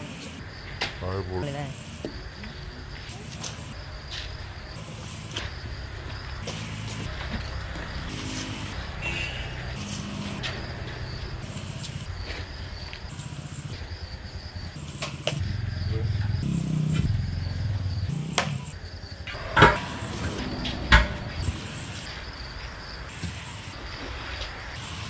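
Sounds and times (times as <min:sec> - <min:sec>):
insects chirping: 0:00.0 - 0:25.0
low engine rumble: 0:15.4 - 0:23.2
sharp knocks: 0:19.3 - 0:22.2.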